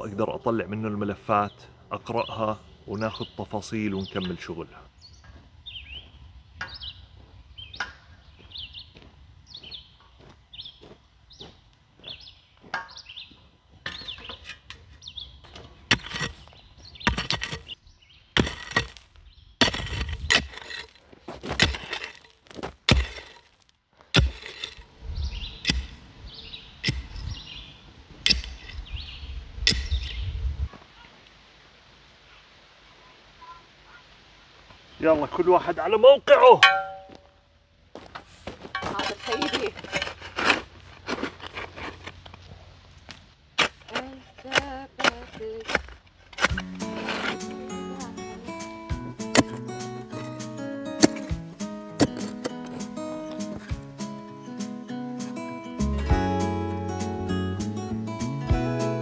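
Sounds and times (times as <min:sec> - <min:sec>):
birds chirping: 0:00.0 - 0:19.7, 0:25.1 - 0:30.5, 0:46.5 - 0:59.0
hand tools striking ground: 0:12.6 - 0:17.8, 0:18.4 - 0:24.9, 0:25.6 - 0:26.0, 0:26.8 - 0:27.2, 0:28.2 - 0:28.9, 0:29.6 - 0:30.2, 0:36.6 - 0:37.3, 0:38.0 - 0:42.4, 0:43.1 - 0:58.3.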